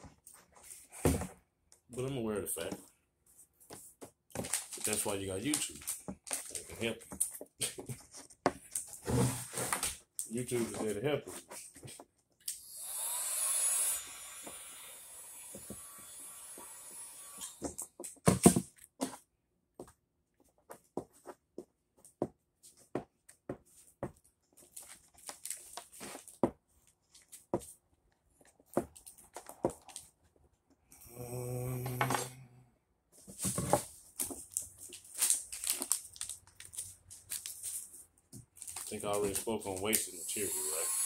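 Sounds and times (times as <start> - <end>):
heat gun blowing: 12.5 - 17.7, 40.0 - 41.0.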